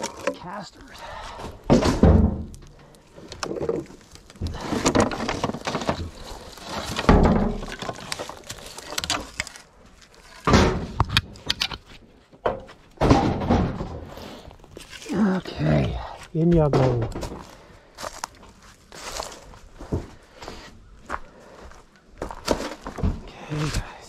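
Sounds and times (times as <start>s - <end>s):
heavy objects thumping and scraping: 1.1s - 9.5s, 10.2s - 11.6s, 12.4s - 18.3s, 19.8s - 20.7s, 22.2s - 23.8s.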